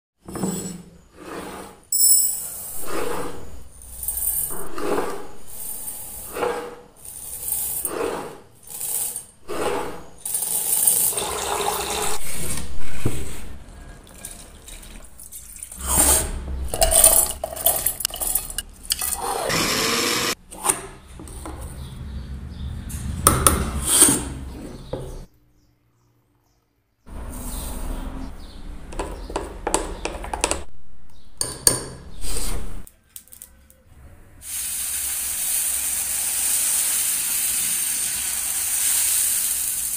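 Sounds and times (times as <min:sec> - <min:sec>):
water sloshing and pouring: 0:11.0 - 0:15.8.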